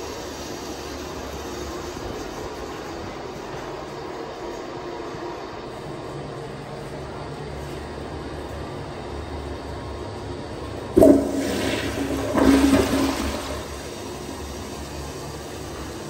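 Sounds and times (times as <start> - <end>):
toilet flushing: 0.0 - 3.8, 10.6 - 16.0.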